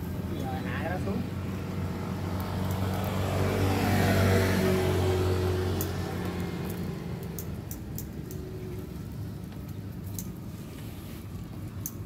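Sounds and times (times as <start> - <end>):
passing vehicle: 0.0 - 9.4
road traffic rumble: 0.0 - 12.0.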